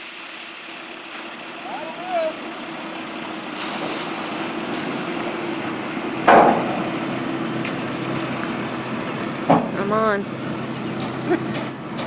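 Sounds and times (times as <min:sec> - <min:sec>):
diesel truck engine running: 0:00.0 - 0:12.0
loud bang: 0:06.2 - 0:07.0.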